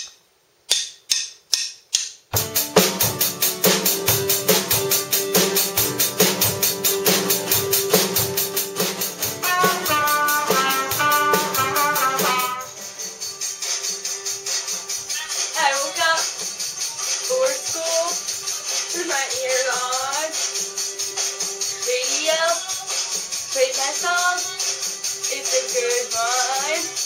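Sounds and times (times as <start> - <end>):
drum kit playing: 0.7 - 27.0
higher melody line: 2.4 - 13.0
acoustic guitar: 2.4 - 22.3.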